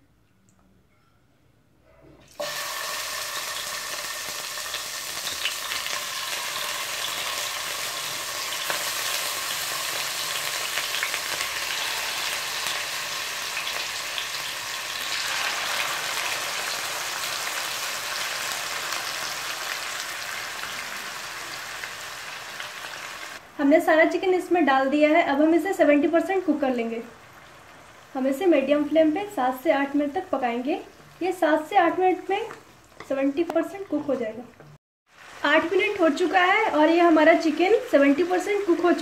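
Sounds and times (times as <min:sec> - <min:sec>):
chicken sizzling in hot oil: 0:02.4 - 0:23.4, 0:26.6 - 0:29.0, 0:35.1 - 0:39.0.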